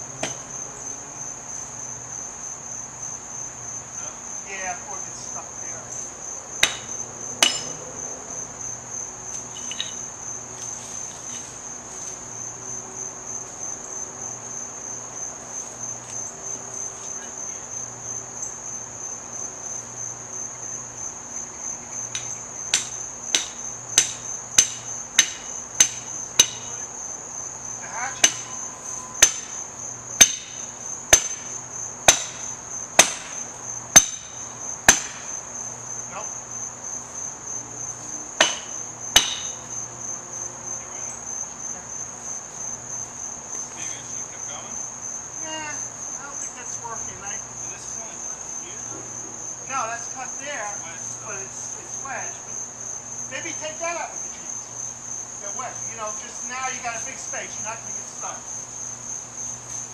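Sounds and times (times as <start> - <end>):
insects droning: 0.0 - 59.9
ringing hammer blows: 6.6 - 7.8, 22.1 - 26.8, 28.2 - 35.3, 38.4 - 39.7.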